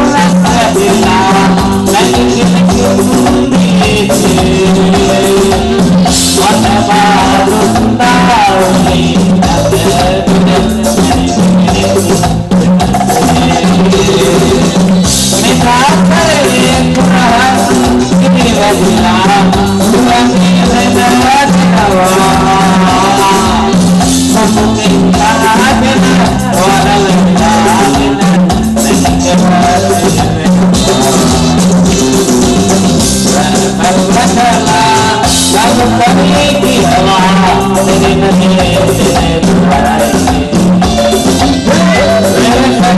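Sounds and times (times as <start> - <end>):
drums and percussion beat: 0.0 - 42.9
sustained melody line: 0.0 - 42.9
upbeat dance music: 0.0 - 42.9.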